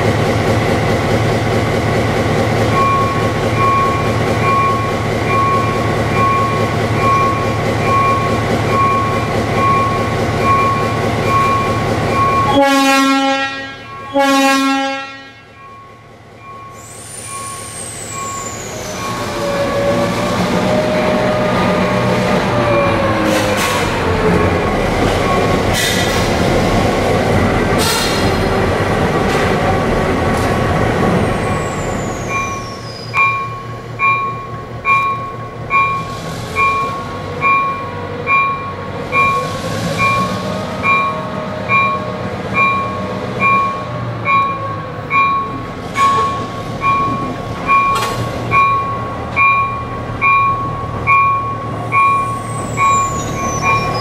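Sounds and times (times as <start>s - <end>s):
locomotive diesel engine running: 0.0s - 54.0s
locomotive bell ringing: 2.7s - 20.1s, 24.4s - 25.6s, 32.1s - 54.0s.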